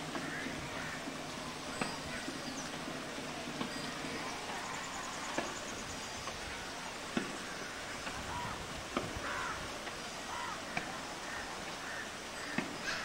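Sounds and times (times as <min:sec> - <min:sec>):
faint distant calls: 0:00.0 - 0:13.0
steady hiss: 0:00.0 - 0:13.0.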